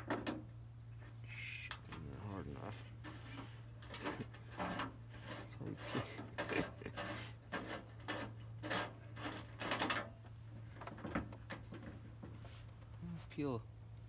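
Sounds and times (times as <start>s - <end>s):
blade scraping plastic: 3.0s - 10.0s.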